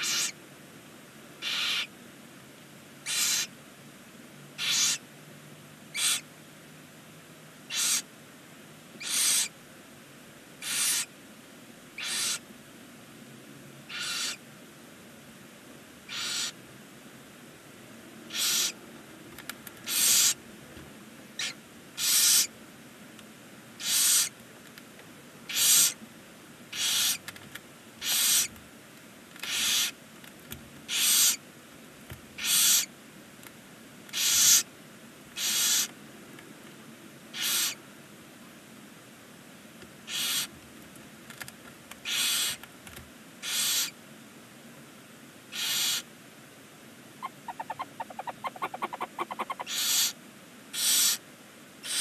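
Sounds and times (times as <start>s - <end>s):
owl hissing screeches: 0.0s - 0.4s, 1.4s - 1.9s, 3.0s - 3.5s, 4.6s - 5.0s, 5.9s - 6.3s, 7.7s - 8.1s, 9.0s - 9.6s, 10.6s - 11.1s, 12.0s - 12.5s, 13.9s - 14.4s, 16.1s - 16.6s, 18.3s - 18.8s, 19.8s - 20.4s, 21.4s - 22.6s, 23.8s - 24.4s, 25.5s - 26.0s, 26.7s - 27.2s, 28.0s - 28.5s, 29.4s - 30.0s, 30.9s - 31.4s, 32.4s - 32.9s, 34.1s - 34.7s, 35.4s - 35.9s, 37.3s - 37.8s, 40.1s - 40.5s, 42.0s - 42.6s, 43.4s - 44.0s, 45.5s - 46.1s, 47.2s - 51.2s.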